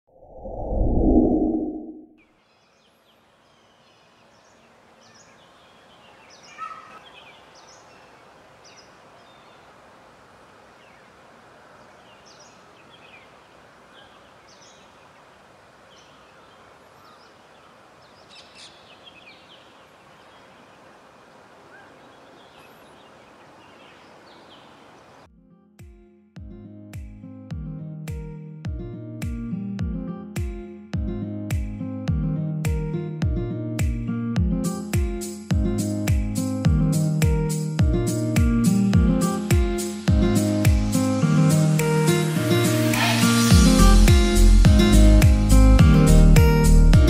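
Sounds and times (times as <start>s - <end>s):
small birds chirping: 2.2s - 9.8s, 10.6s - 25.3s
steady background hiss: 2.3s - 25.3s, 39.2s - 44.6s.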